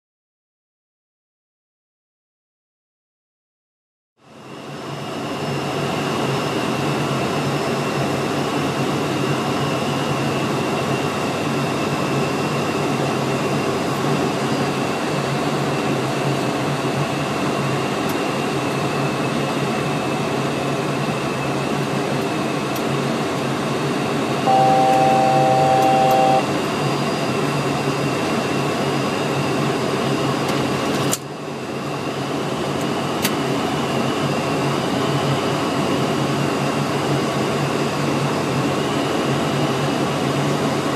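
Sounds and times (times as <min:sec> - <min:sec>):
aircraft engine and airflow drone: 0:04.2 - 0:40.9
electronic cockpit tone: 0:24.4 - 0:26.5.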